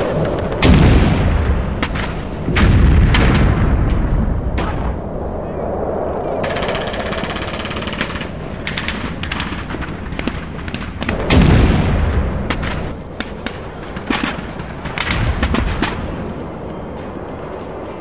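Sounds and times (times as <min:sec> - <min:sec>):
pyrotechnic explosion boom: 0:00.0 - 0:05.3, 0:08.0 - 0:16.4.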